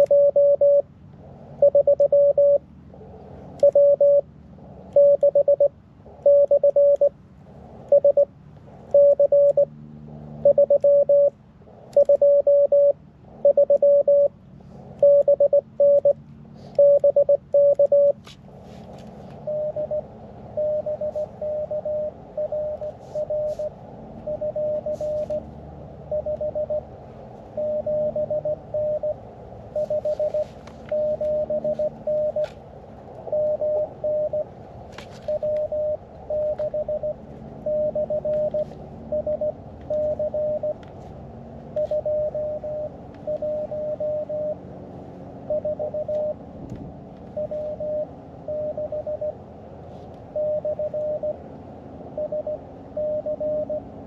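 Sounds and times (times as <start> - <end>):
morse code tone: 0.0 - 0.8, 1.6 - 2.6, 3.6 - 4.3, 4.9 - 7.1, 7.9 - 8.3, 8.9 - 9.7, 10.4 - 11.4, 12.0 - 14.3, 15.0 - 16.2, 16.8 - 18.2, 19.4 - 25.5, 26.1 - 26.9, 27.5 - 32.6, 33.2 - 34.5, 35.1 - 40.8, 41.8 - 44.6, 45.5 - 46.4, 47.3 - 49.4, 50.4 - 51.4, 52.2 - 53.9.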